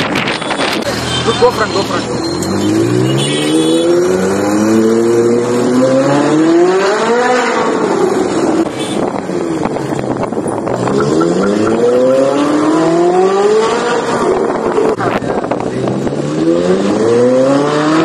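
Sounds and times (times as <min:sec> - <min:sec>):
sports car engine revving: 0:09.4 - 0:18.0.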